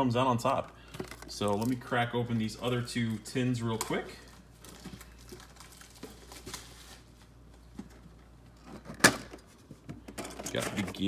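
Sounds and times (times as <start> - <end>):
crinkling plastic packaging: 1.0 - 7.5.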